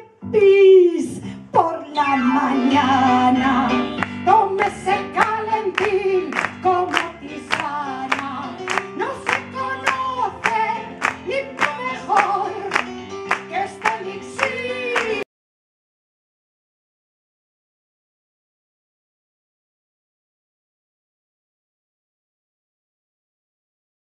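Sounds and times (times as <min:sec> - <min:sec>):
musical accompaniment: 0:00.0 - 0:15.2
woman singing into a microphone: 0:00.0 - 0:15.2.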